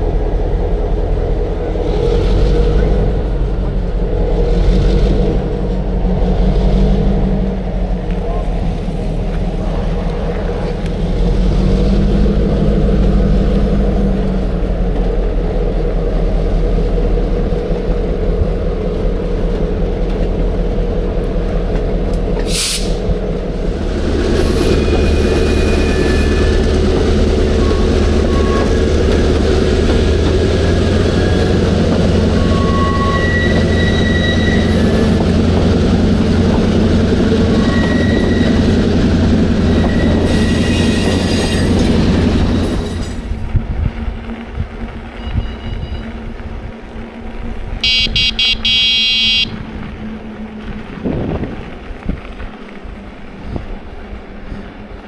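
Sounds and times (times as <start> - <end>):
diesel locomotive engine drone: 0.0 - 55.0
sharp hiss of air: 22.5 - 23.0
high wheel squeals: 24.3 - 29.8, 30.4 - 35.6, 37.3 - 43.2, 45.1 - 46.3, 47.8 - 49.5.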